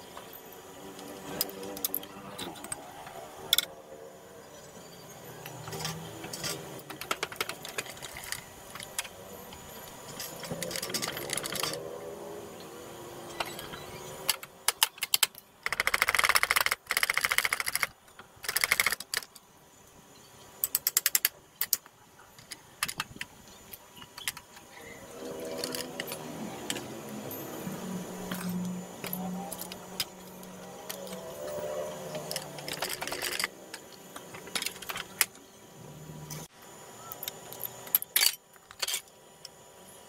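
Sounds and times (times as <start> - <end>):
ratchet wrench clicking: 5.4 - 11.9, 13.3 - 19.4, 20.6 - 35.4.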